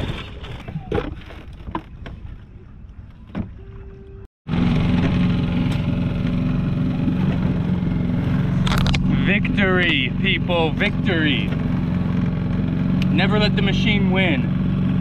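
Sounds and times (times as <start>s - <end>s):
outboard motor running: 0.6s - 15.0s.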